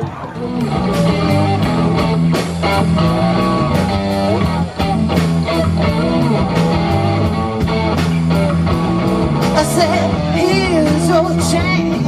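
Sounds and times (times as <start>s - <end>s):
bass guitar: 0.0s - 12.0s
drum kit steady beat: 0.0s - 12.0s
electric guitars: 0.0s - 12.0s.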